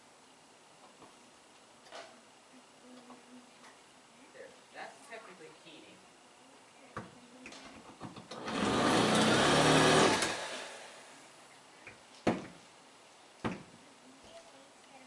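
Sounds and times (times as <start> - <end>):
power drill boring into metal: 8.4 - 10.8
sharp knocks: 12.2 - 12.6.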